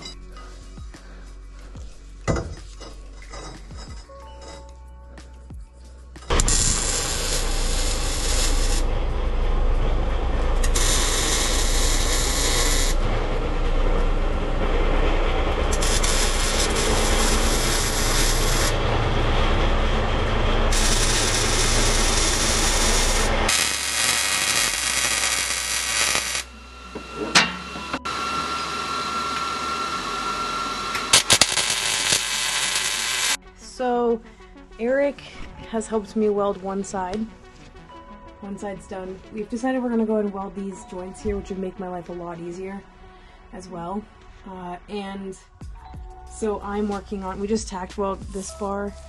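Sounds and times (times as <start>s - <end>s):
welding arc crackling: 6.3s - 8.9s, 10.5s - 26.6s, 30.8s - 33.4s
steady hum: 6.3s - 33.4s.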